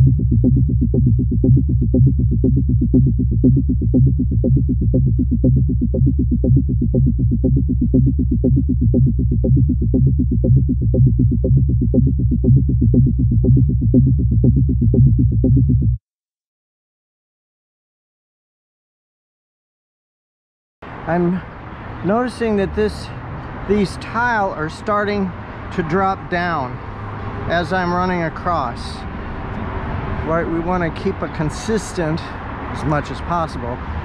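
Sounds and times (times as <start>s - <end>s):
electronic music with pulsing beat: 0.0s - 16.0s.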